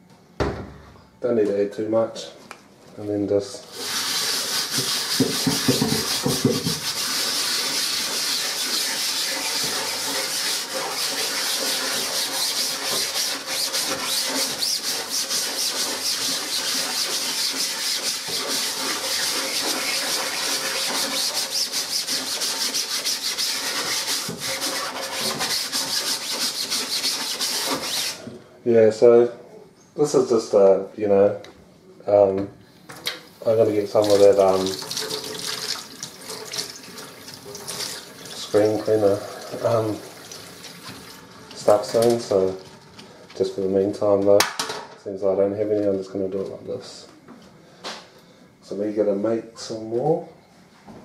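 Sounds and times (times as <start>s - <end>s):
sponge scrubbing mesh screen: 3.7s - 28.2s.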